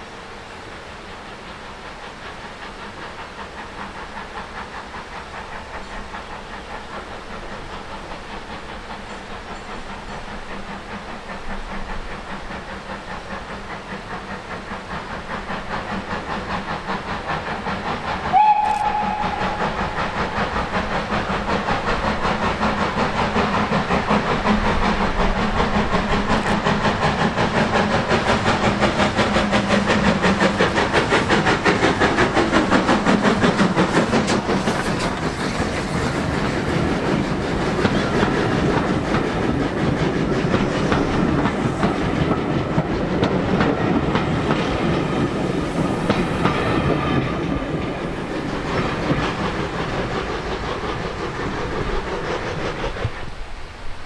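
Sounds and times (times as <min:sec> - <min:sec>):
steam locomotive chuffing: 0:00.0 - 0:54.0
wheels clicking over rail joints: 0:04.6 - 0:53.3
train whistle blast: 0:18.3 - 0:20.0.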